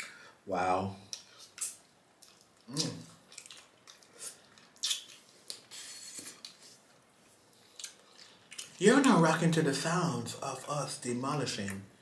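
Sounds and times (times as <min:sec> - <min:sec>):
wet lip smacks: 0:01.1 - 0:06.6.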